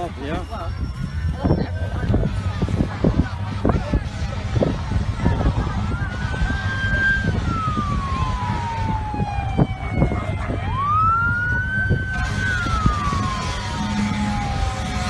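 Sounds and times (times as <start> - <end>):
emergency siren wailing: 4.1 - 15.0.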